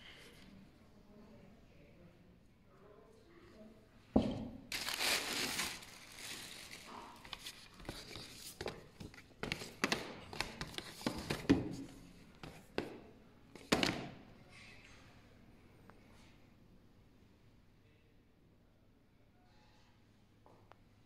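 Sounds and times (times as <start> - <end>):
tissue paper crinkling: 4.7 - 9.7.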